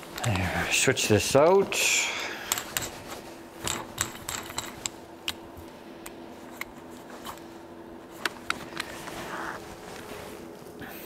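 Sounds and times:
faint steady hum: 0.0s - 11.0s
bolts and washers clicking: 3.6s - 5.4s.

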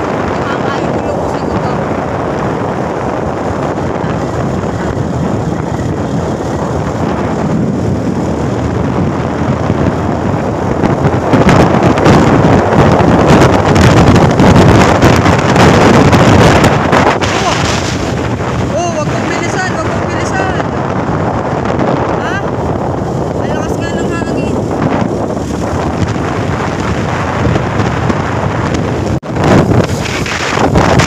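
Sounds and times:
motorcycle running: 0.0s - 31.0s
wind rushing over microphone: 0.0s - 31.0s.

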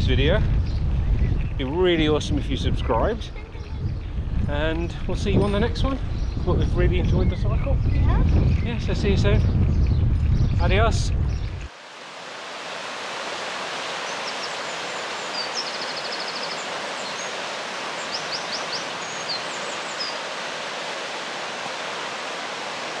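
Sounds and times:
birds chirping: 0.5s - 11.8s, 12.8s - 23.0s
rushing water: 11.6s - 23.0s.

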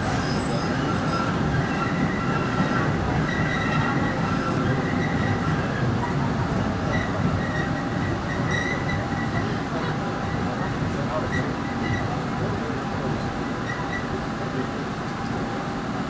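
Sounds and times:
high wheel squeal: 0.0s - 5.7s, 6.8s - 9.4s, 13.4s - 14.2s
low rumble of wheels on rail: 0.0s - 16.0s.

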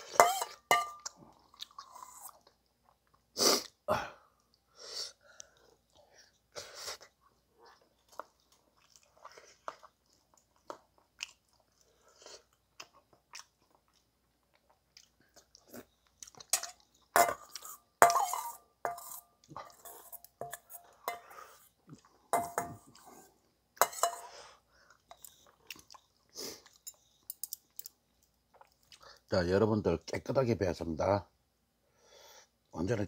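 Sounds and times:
spoon scraping metal bowl: 0.0s - 1.0s, 16.5s - 21.6s, 22.4s - 23.0s, 23.8s - 24.4s
chewing: 7.0s - 17.9s, 24.8s - 27.8s.

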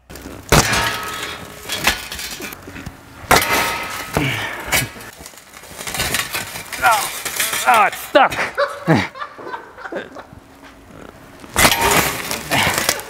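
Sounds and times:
metal subframe banging and scraping: 0.1s - 8.3s.

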